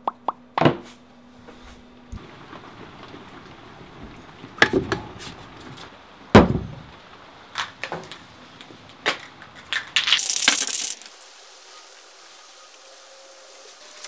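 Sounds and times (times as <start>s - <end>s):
spray can knocks and clatters: 10.0s - 11.2s.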